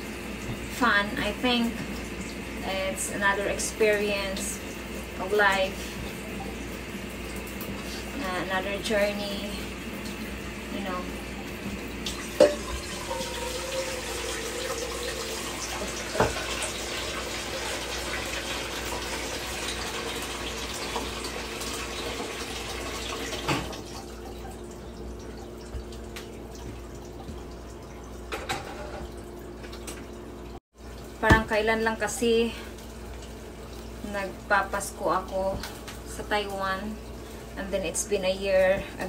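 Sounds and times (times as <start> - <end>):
tap running water into sink: 11.3 - 31.8.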